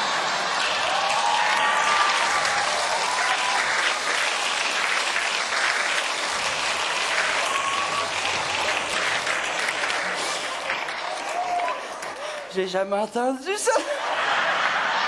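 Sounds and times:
audience applauding: 0.0 - 12.6
voices rising above clapping: 0.0 - 12.6.

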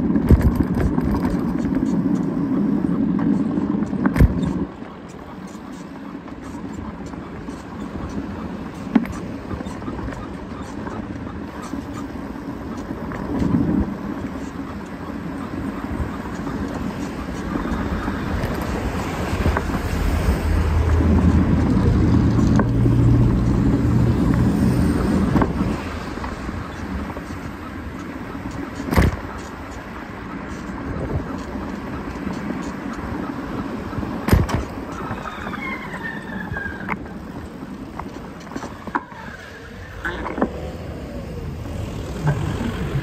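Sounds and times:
steady rushing noise: 0.0 - 43.0
motor vehicle engine passing: 39.2 - 43.0.

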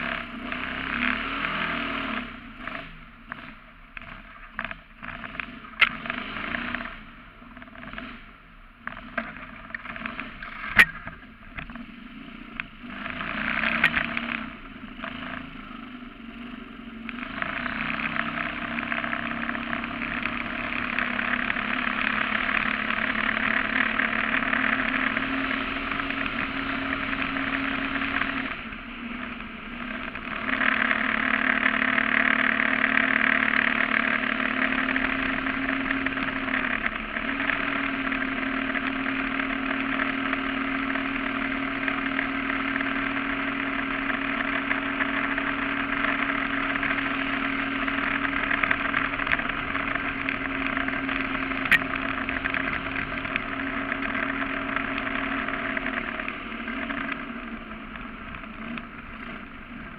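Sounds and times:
boat motor drone: 12.6 - 59.9.

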